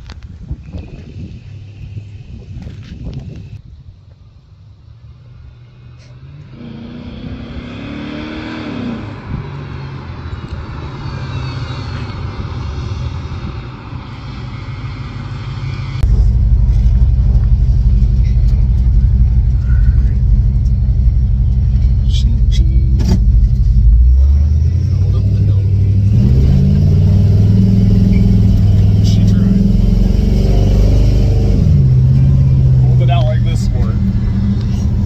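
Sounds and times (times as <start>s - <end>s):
car engine accelerating: 0.0s - 35.0s
engine drone inside car cabin: 13.4s - 35.0s.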